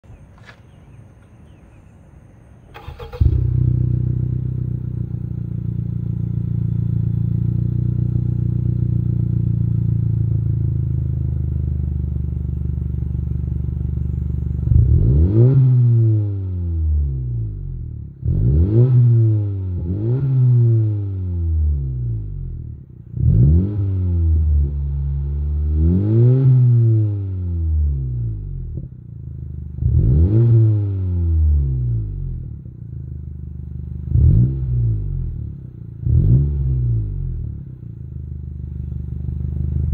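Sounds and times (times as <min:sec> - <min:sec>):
car engine idling: 0:00.1 - 0:15.4, 0:27.7 - 0:30.2, 0:31.3 - 0:39.9
car engine starting: 0:00.1 - 0:39.9
engine revving: 0:02.7 - 0:11.0, 0:14.6 - 0:28.9, 0:29.6 - 0:32.7, 0:33.7 - 0:37.9.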